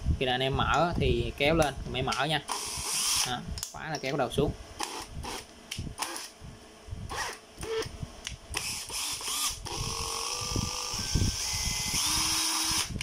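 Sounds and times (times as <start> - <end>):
cordless drill motor running: 2.5 - 3.3, 4.8 - 6.3, 7.1 - 7.9, 8.5 - 13.0.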